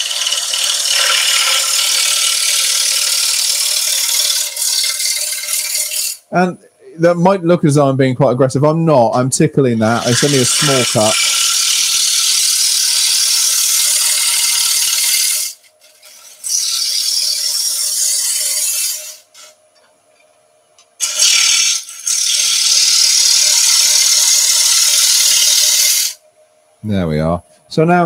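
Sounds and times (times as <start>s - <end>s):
gouge rasping on spinning wood: 0.0s - 6.2s, 10.0s - 19.2s, 21.0s - 26.2s
lathe humming: 0.0s - 6.2s, 9.8s - 15.2s, 21.1s - 26.1s.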